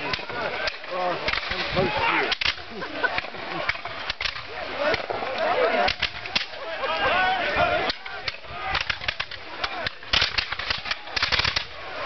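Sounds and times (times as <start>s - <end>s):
musket volley: 0.0s - 12.0s
voices calling out: 0.0s - 12.0s.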